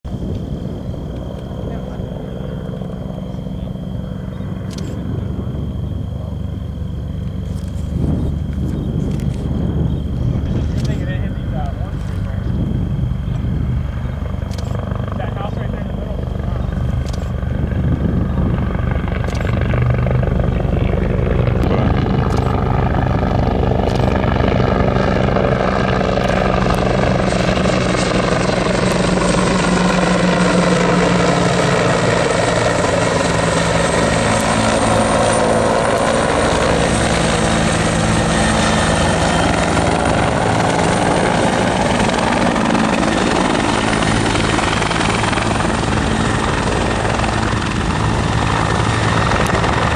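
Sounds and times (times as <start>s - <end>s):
high turbine whine: 0.0s - 49.9s
helicopter rotor blades: 0.1s - 49.9s.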